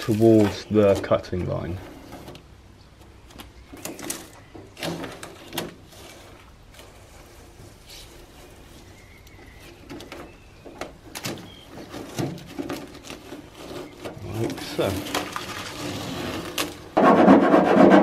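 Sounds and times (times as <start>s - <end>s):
tape peeling off metal: 0.0s - 18.0s
tape crinkling: 3.2s - 17.0s.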